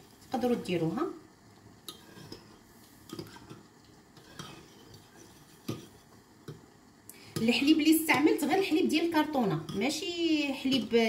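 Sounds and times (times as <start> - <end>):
spoon stirring in a bowl: 1.8 - 6.6, 9.4 - 11.0.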